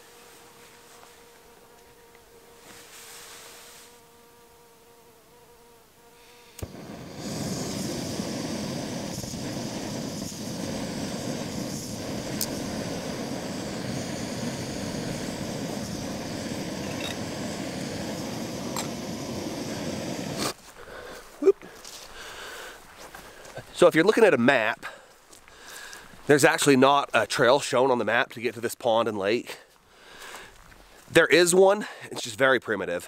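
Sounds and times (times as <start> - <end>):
gas burner hissing: 6.2 - 21.2.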